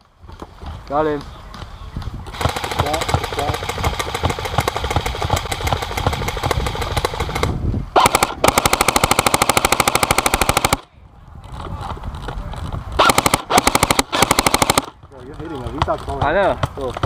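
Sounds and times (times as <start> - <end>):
airsoft rifle firing bursts: 2.3 - 10.9, 13.0 - 15.0.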